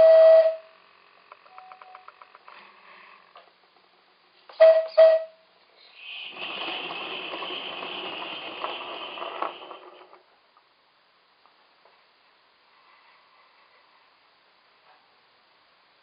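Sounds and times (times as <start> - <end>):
model locomotive whistle toots: 0.0 - 0.8, 4.6 - 10.2
locomotive exhaust hissing: 4.4 - 10.4.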